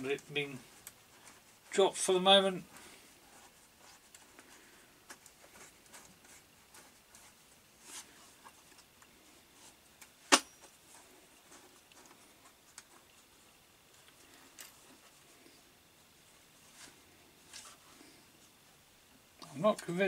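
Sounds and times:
hands rustling: 0:00.0 - 0:18.8.

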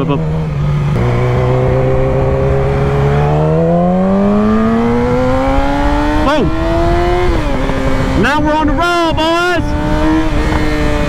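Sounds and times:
motorcycle engine accelerating: 0:00.0 - 0:11.0.

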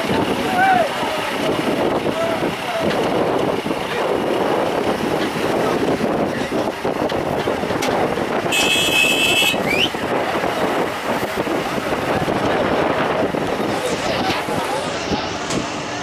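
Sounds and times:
heavy diesel machinery running: 0:00.0 - 0:16.0
short rising whistle: 0:09.6 - 0:10.0.

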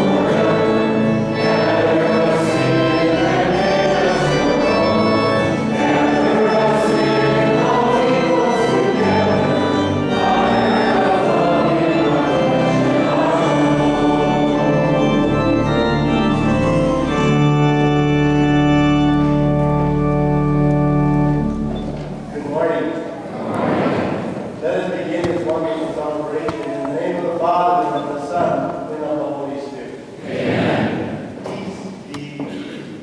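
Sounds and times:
choir singing a hymn: 0:00.0 - 0:20.2, 0:21.3 - 0:28.4, 0:30.1 - 0:31.4
organ playing: 0:00.0 - 0:23.2.

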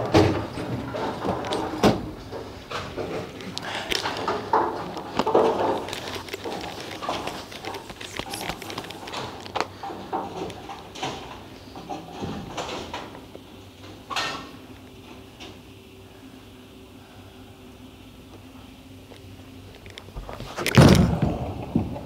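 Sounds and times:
bowling balls and pins clattering: 0:00.0 - 0:13.2, 0:20.4 - 0:22.0
faint steady hum: 0:00.0 - 0:22.0.

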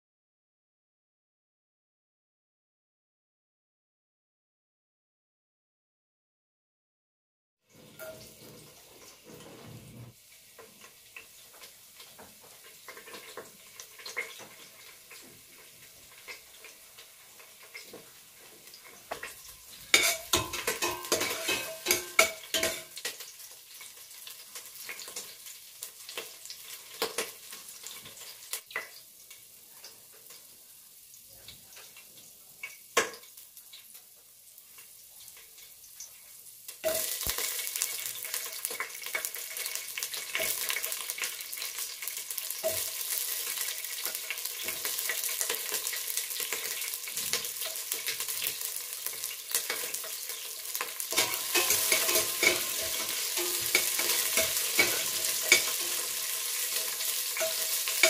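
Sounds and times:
ginger sizzling in oil: 0:07.7 - 0:58.0
metal spoon scraping pot: 0:19.9 - 0:23.1, 0:51.1 - 0:55.9.

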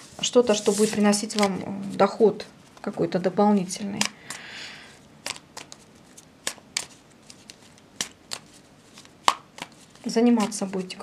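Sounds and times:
cards snapping while shuffled: 0:05.2 - 0:10.7
cards rustling: 0:05.2 - 0:11.0.

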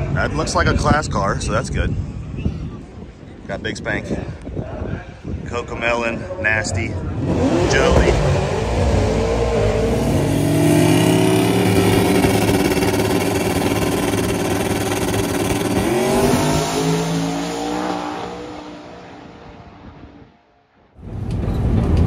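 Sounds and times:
drag car engine at full throttle: 0:06.8 - 0:20.2.

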